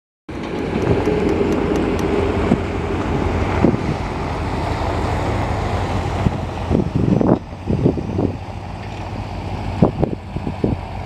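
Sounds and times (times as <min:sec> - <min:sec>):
tractor engine and tyre rumble: 0:00.3 - 0:11.0
wind on microphone: 0:00.3 - 0:11.0
tanker wagon clunks: 0:08.5 - 0:09.3.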